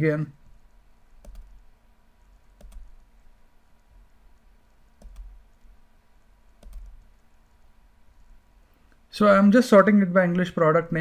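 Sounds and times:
low steady hum: 0:00.0 - 0:11.0
computer mouse clicks: 0:01.2 - 0:01.7, 0:02.5 - 0:03.1, 0:04.3 - 0:05.8, 0:06.5 - 0:07.3.

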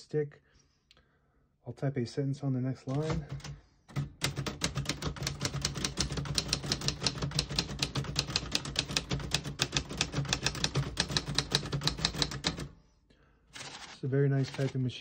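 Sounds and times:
typewriter keystrokes: 0:02.9 - 0:12.8, 0:13.6 - 0:14.8.

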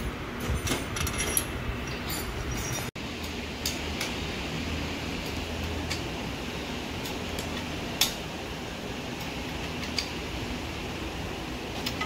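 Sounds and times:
steady low hum: 0:00.0 - 0:12.0
tools clinking on metal: 0:00.4 - 0:03.8.

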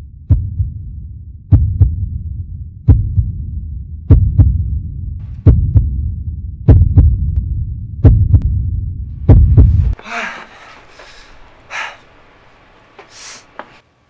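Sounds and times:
heartbeat thuds: 0:00.2 - 0:10.0.

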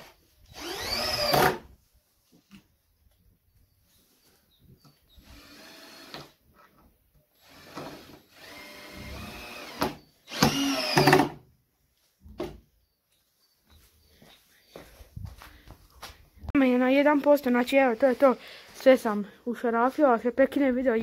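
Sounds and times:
cordless drill motor whining: 0:00.4 - 0:01.7, 0:05.1 - 0:06.4, 0:07.4 - 0:11.4.

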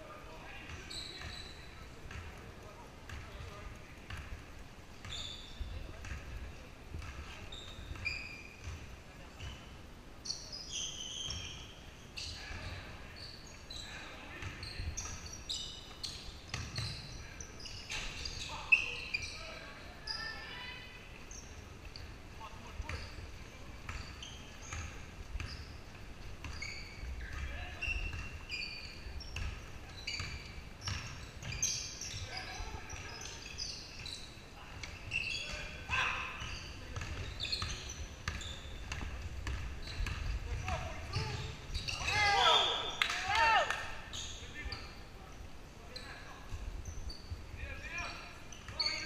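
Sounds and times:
sneakers squeaking: 0:00.1 - 0:49.0
basketball bouncing: 0:29.4 - 0:31.6, 0:36.9 - 0:41.6.

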